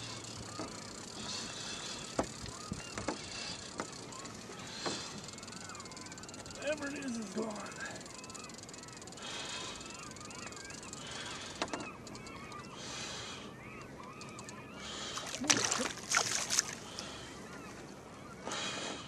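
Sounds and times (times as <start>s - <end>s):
gear clattering in boat: 0.0s - 12.8s
birds calling: 0.0s - 19.0s
water sloshing: 15.2s - 17.2s.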